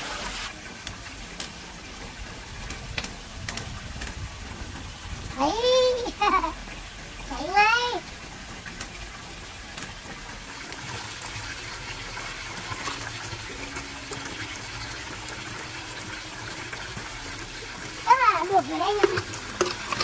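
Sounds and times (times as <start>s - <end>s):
firewood crackling: 0.1s - 20.0s.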